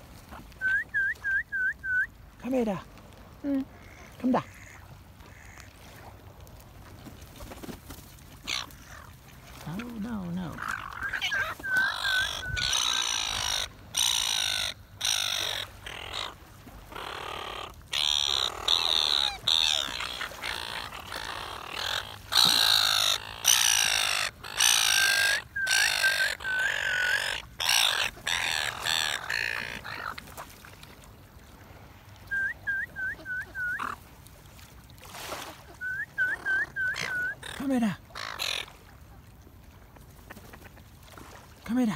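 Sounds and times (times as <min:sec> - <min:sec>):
gulls squawking: 0:10.4 - 0:30.2, 0:32.6 - 0:34.0, 0:35.7 - 0:38.7.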